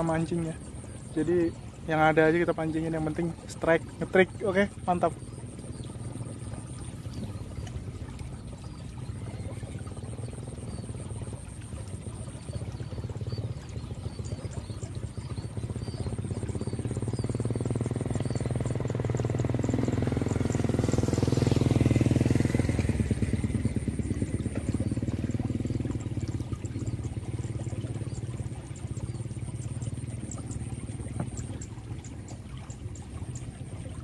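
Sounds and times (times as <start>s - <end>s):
motorcycle engine passing by: 14.2s - 31.6s.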